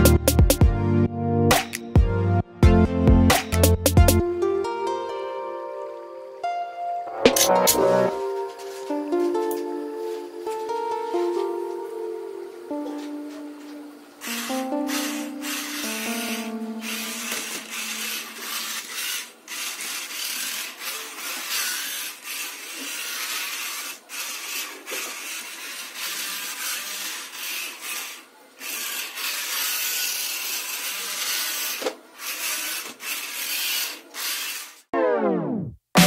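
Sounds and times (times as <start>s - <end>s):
small gear motors whirring: 13.2s - 34.9s.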